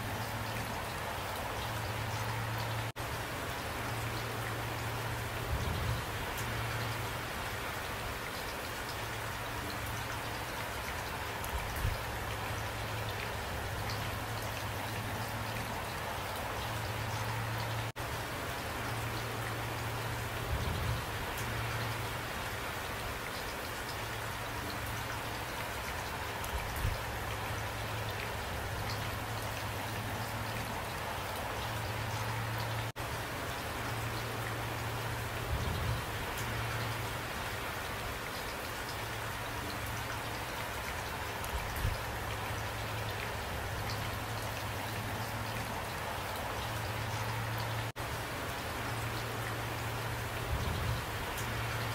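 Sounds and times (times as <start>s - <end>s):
heavy rain pattering: 0.0s - 51.9s.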